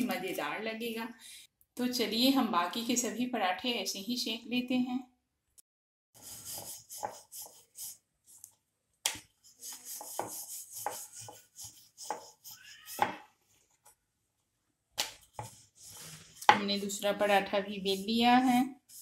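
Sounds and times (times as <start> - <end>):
rolling pin rubbing over dough: 9.4 - 13.0, 17.7 - 19.0.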